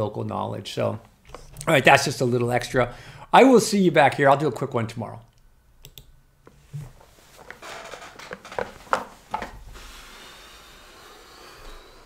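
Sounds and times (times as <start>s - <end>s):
room noise: 0.0s - 12.0s
office chair rustling: 6.5s - 10.1s.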